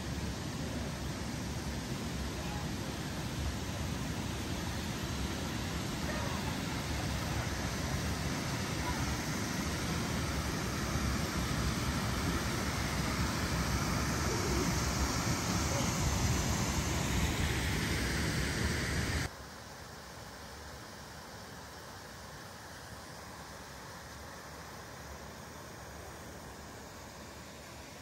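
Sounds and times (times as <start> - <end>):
water rushing over waterfall: 0.0 - 19.3.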